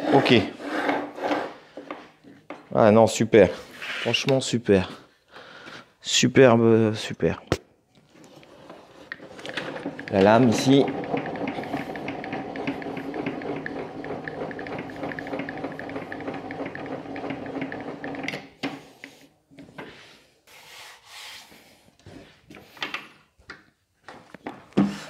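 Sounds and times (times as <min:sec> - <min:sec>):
table saw crank gear ticking: 0:09.4 - 0:18.4.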